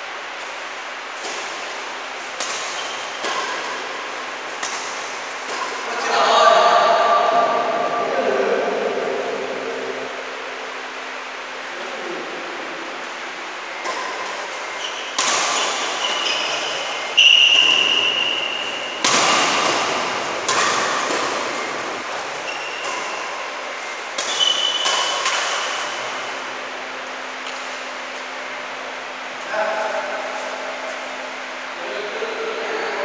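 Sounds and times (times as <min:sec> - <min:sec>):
shoes squeaking on court floor: 0:01.2 - 0:05.9, 0:13.1 - 0:19.2, 0:20.2 - 0:26.3
rackets hitting shuttlecock: 0:01.2 - 0:06.0, 0:13.8 - 0:26.7.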